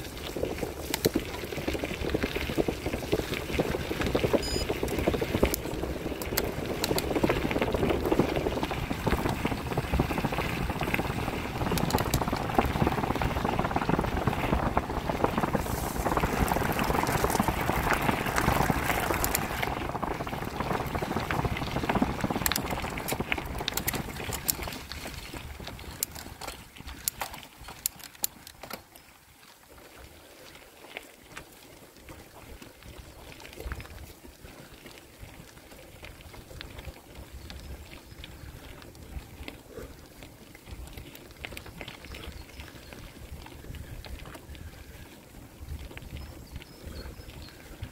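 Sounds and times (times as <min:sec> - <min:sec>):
bicycle tyres rolling on gravel: 0:00.0 - 0:47.9
bike rattling clicks: 0:00.2 - 0:14.5, 0:15.1 - 0:20.2, 0:20.9 - 0:29.0.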